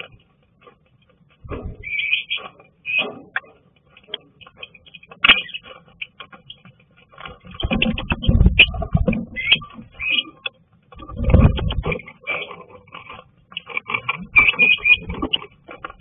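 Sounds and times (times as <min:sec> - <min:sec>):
lovebirds squawking: 0:01.6 - 0:03.5, 0:04.1 - 0:06.7, 0:07.4 - 0:16.0.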